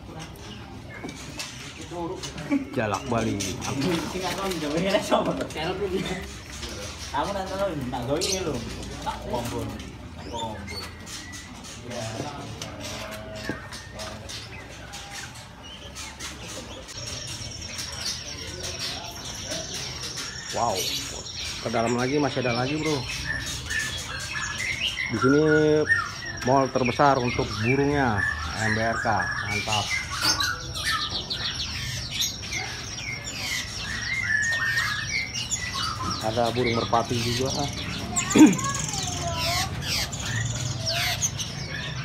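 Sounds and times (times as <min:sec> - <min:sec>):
songbirds chirping and whistling: 0:00.0 - 0:42.0.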